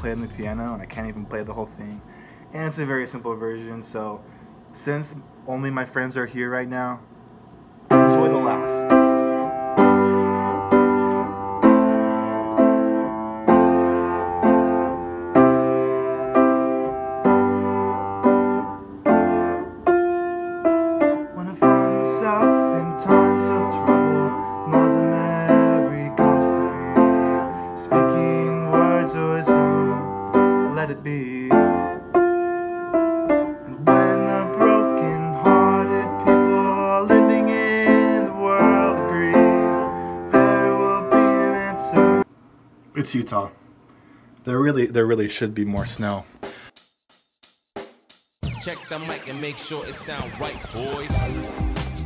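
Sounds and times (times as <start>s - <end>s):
piano chords and single notes: 7.8s - 42.3s.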